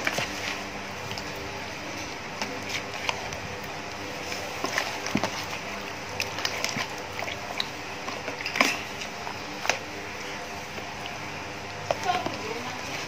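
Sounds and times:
hands squelching kneading meat: 0.0 - 13.0.

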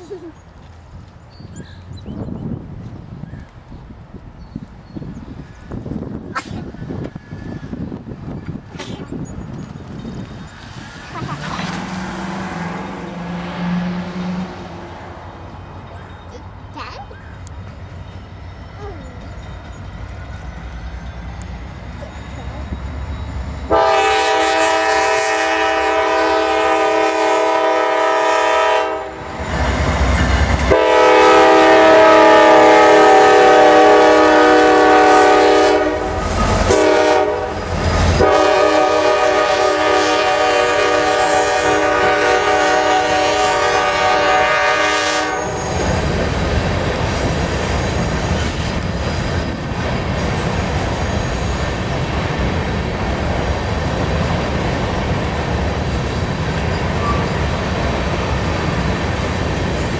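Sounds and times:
train rumbling past: 0.0 - 59.9
locomotive horn blasts: 23.7 - 29.4, 30.6 - 37.6, 38.2 - 45.8.

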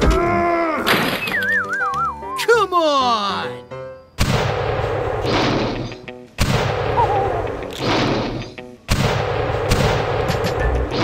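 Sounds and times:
cannon blasts: 4.2 - 7.0, 7.8 - 11.0.

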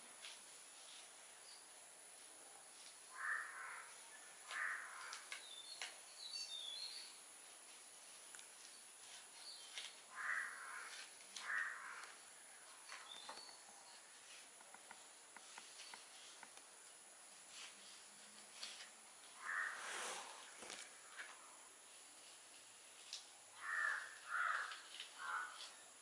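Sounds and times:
small birds chirping: 2.6 - 16.6
crow cawing: 3.1 - 5.3, 10.1 - 12.2, 19.4 - 20.0, 23.6 - 25.8.

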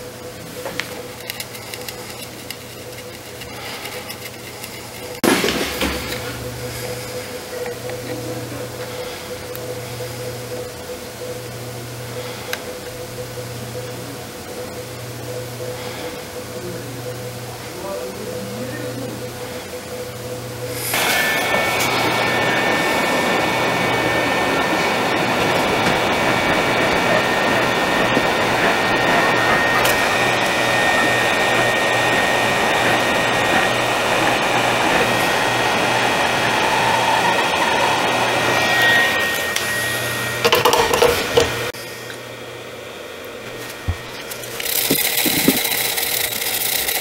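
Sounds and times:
electrical hum: 0.0 - 47.0
faint high whine: 0.0 - 47.0
hot-air station hissing: 0.0 - 47.0
small tools clicking: 0.8 - 5.2, 44.3 - 47.0.

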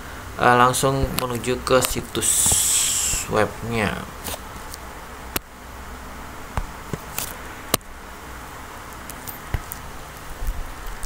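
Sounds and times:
steady background hiss: 0.0 - 11.0
fingertip tapping touchscreen: 2.3 - 3.3.

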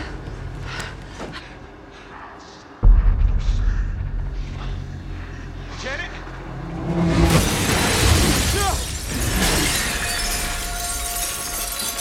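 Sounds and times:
glass shattering: 7.3 - 12.0.

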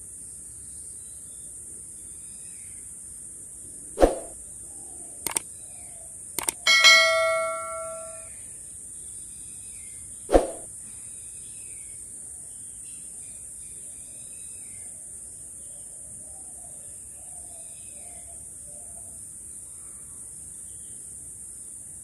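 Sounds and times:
pop sound effect: 4.0 - 4.3
mouse clicks: 6.4 - 6.6
notification bell ding: 6.7 - 8.2.

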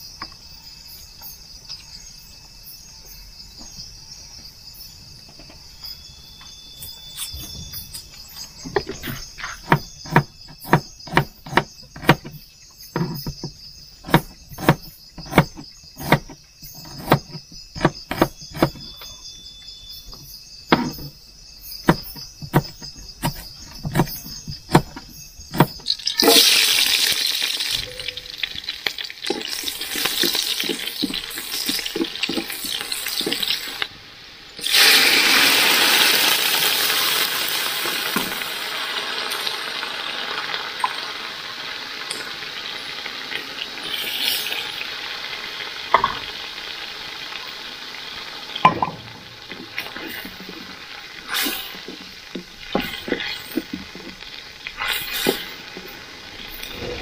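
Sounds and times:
crickets and insects trilling: 0.0 - 57.0
knife chopping on cutting board: 9.6 - 12.4, 14.0 - 18.8, 21.9 - 25.8
food sizzling in hot oil: 25.4 - 57.0.

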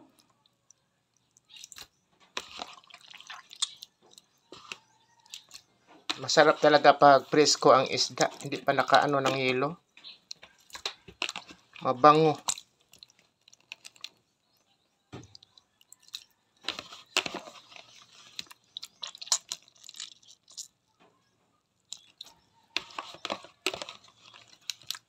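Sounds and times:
wet squelching of fish squeezed: 1.2 - 6.8, 15.3 - 20.8.

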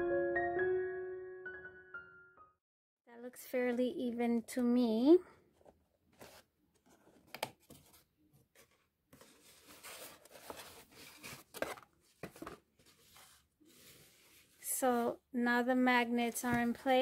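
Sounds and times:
cardstock rustling and scraping: 5.6 - 15.1, 16.2 - 17.0.

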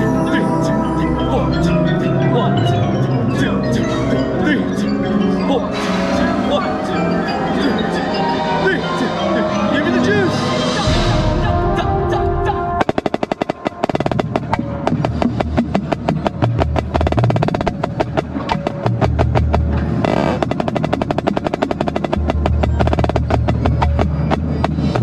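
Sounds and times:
snare drum strokes and rolls: 12.8 - 25.0.

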